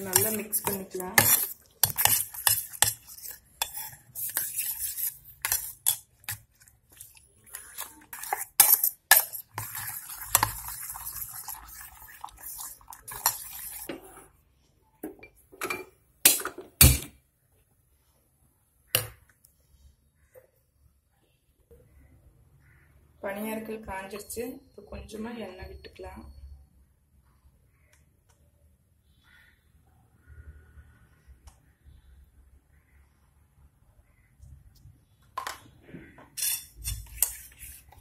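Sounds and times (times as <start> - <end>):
metal spoon stirring in bowl: 0.0 - 14.3, 36.3 - 38.0.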